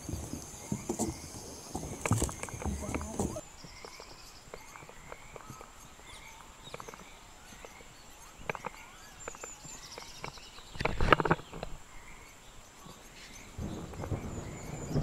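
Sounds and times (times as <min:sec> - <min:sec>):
footsteps on concrete stairs: 0:00.0 - 0:03.4
bird chirps: 0:00.0 - 0:15.0.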